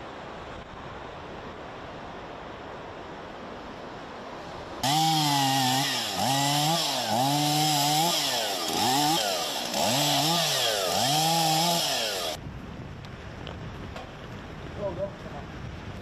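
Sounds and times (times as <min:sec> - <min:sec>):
chainsaw cutting wood: 0:04.8 - 0:12.4.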